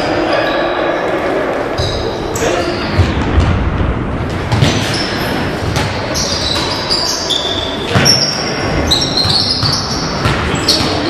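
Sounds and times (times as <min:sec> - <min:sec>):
sneakers squeaking on floor: 0:01.8 - 0:03.3, 0:04.3 - 0:11.0
basketball bouncing: 0:02.9 - 0:06.9, 0:07.8 - 0:11.0.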